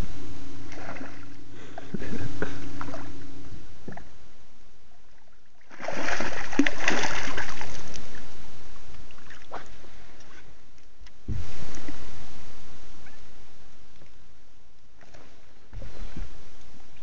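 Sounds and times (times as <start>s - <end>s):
fish splashing in water: 5.6s - 8.3s.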